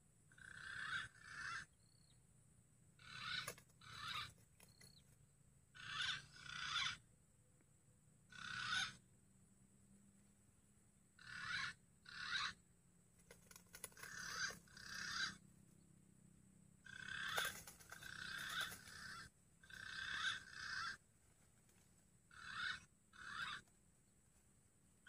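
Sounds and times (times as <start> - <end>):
pigeon calls: 0.3 - 1.8, 3.0 - 5.1, 5.8 - 7.0, 8.3 - 9.0, 11.2 - 12.6, 13.2 - 15.4, 16.8 - 21.0, 21.7 - 23.7.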